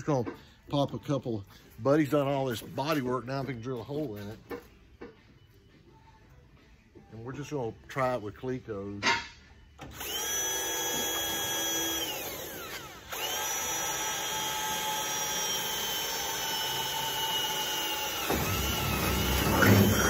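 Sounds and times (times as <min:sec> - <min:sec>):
cordless drill whining: 0:09.8 - 0:20.0
drill bit grinding metal panel: 0:10.0 - 0:20.0.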